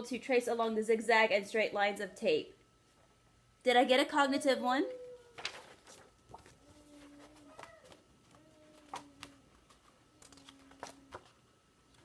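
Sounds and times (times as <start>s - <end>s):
paper rustling and tapping: 5.3s - 12.0s.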